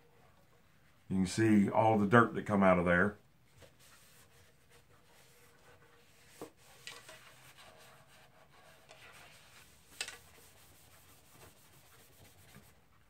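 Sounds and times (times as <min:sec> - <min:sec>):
paper towel rubbing on wood: 0:03.6 - 0:13.0.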